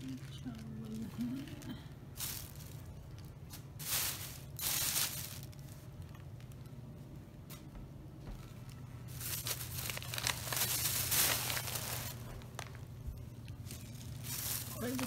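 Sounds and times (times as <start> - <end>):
plastic bags rustling: 0.0 - 6.7, 8.6 - 15.0.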